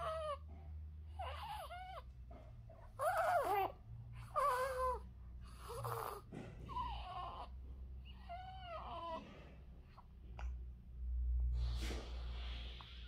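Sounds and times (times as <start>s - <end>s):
baby cooing: 3.0s - 9.2s.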